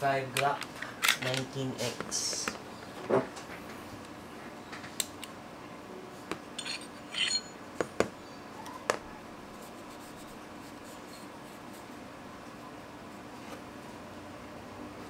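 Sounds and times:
metal parts knocking: 6.6 - 7.5.

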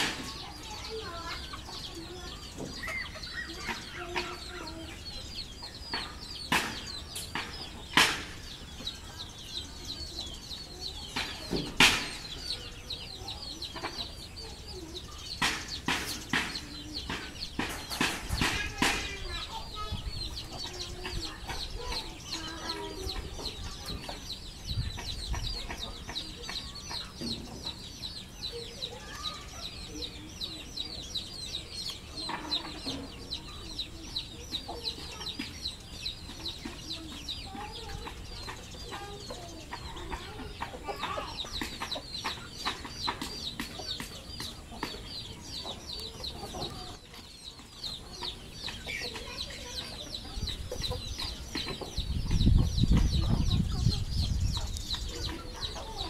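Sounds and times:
chickens clucking: 0.0 - 56.0
fast high chirping: 0.0 - 56.0.

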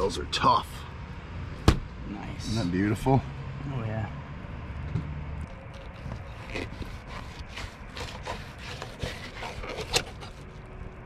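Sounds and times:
knife scraping fish skin: 5.8 - 10.5.

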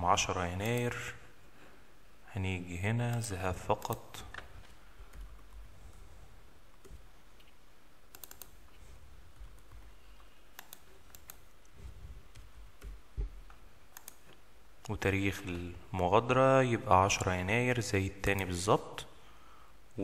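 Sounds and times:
mouse and keyboard clicks: 6.8 - 8.8, 9.4 - 13.3, 13.9 - 14.4.

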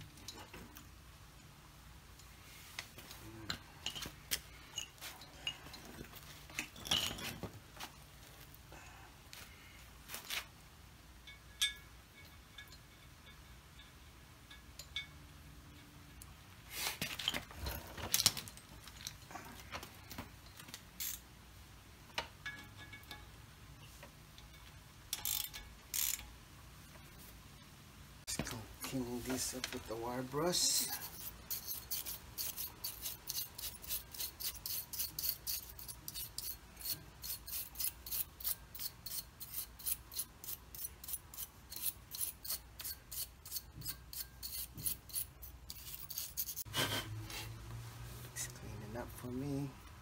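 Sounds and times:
metal clicks and clinks: 22.1 - 23.4, 24.3 - 26.4.

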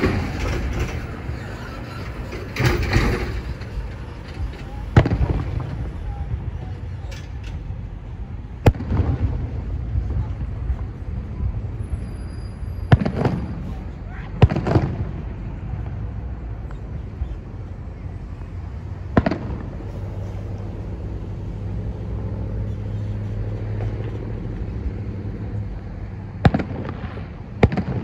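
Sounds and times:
vehicle engine humming: 0.0 - 27.8
distant firework bursts: 4.8 - 6.5, 8.6 - 10.8, 12.7 - 15.9, 19.0 - 20.5, 26.4 - 28.0.

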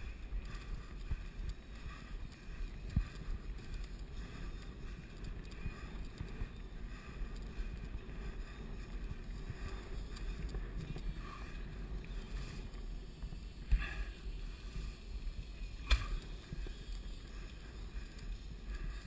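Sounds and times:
bike tyres rumbling on asphalt: 0.0 - 19.0
wind noise on microphone: 0.0 - 19.0.

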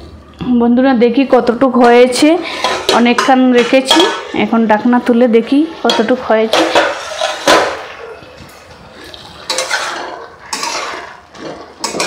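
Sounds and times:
metal spatula scraping pan: 5.9 - 8.0, 8.9 - 12.0
steel lid clanking: 9.5 - 12.0.

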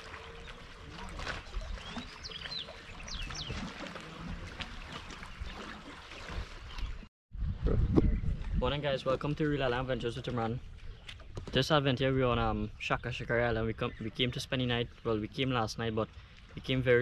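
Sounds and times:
water lapping against rocks: 0.0 - 7.1
wind on microphone: 0.0 - 11.6.

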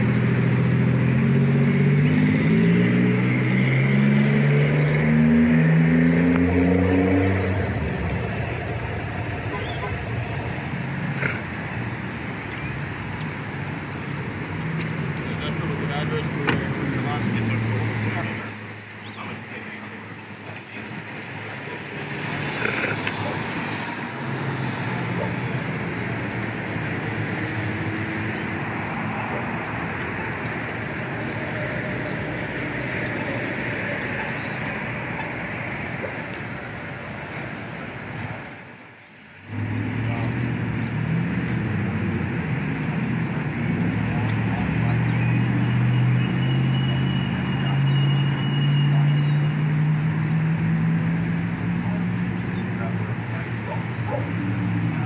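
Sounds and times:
passing cars traffic noise: 0.0 - 55.0
vehicle engine running: 6.3 - 21.8.

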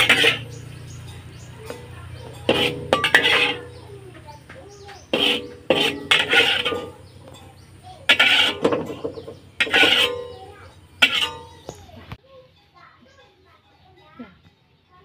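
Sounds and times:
metal spatula scraping a wok: 0.0 - 12.0.

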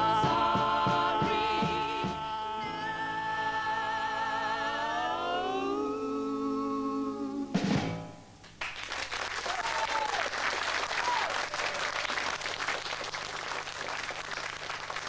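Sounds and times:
audience applauding: 8.4 - 15.0
short shouts from audience: 9.5 - 10.3, 11.0 - 11.8.

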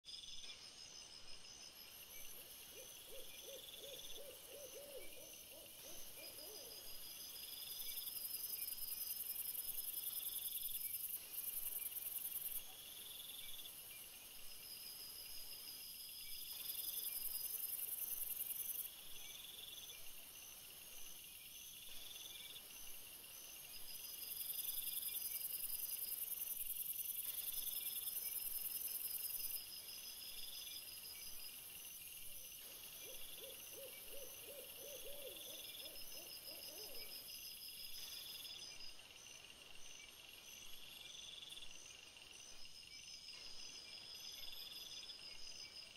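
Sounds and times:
night insects trilling: 0.1 - 45.9
owl hooting: 2.7 - 6.8, 33.0 - 37.1.

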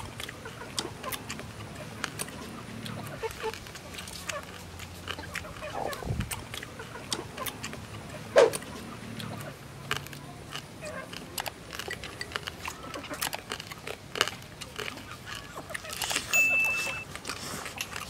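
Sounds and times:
people chewing and crunching: 0.0 - 18.0
high beep: 16.3 - 17.1.

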